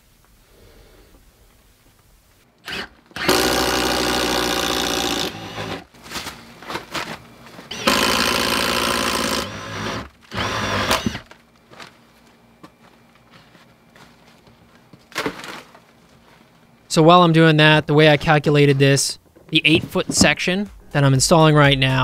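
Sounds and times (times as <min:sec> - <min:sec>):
power drill boring into wood: 0:02.6 - 0:05.9, 0:07.7 - 0:11.3.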